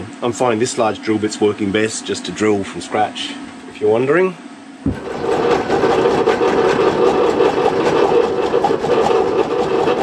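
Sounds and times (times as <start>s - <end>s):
drill press boring through steel: 4.9s - 10.0s.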